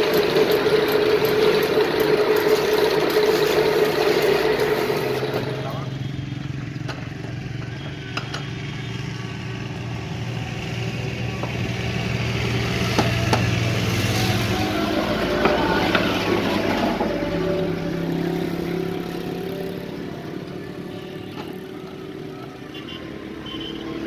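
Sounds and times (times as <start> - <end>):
motor humming: 0.0 - 6.1.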